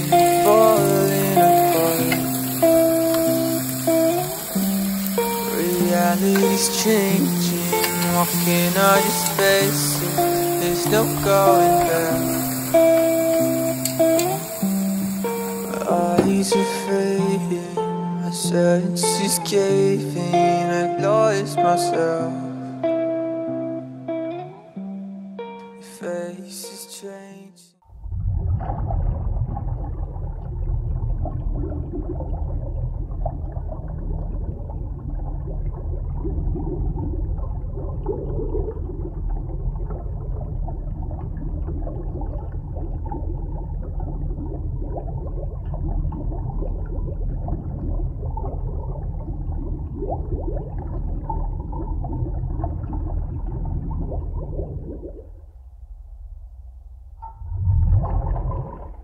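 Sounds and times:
water gurgling: 0.0 - 23.0, 27.9 - 59.0
muffled underwater rumble: 27.9 - 59.0.

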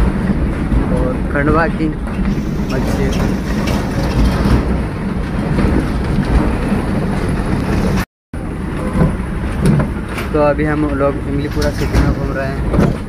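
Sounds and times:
truck engine and road noise: 0.0 - 13.0
loose rattling: 2.2 - 8.0.

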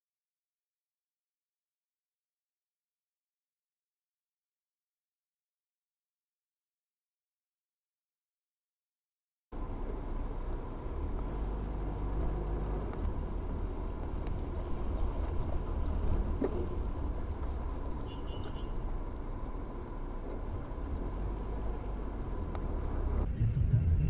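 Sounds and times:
car engine and road noise: 9.5 - 24.0.

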